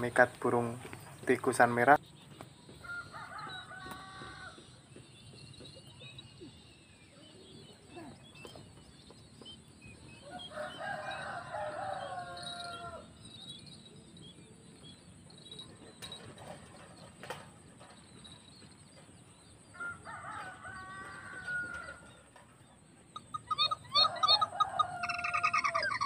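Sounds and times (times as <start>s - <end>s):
bird harsh call phrases: 23.1s - 26.0s.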